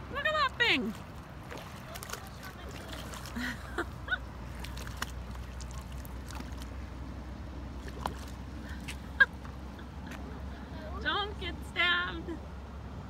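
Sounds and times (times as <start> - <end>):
low steady rumble: 0.0 - 13.0
fish splashing in water: 0.8 - 9.6.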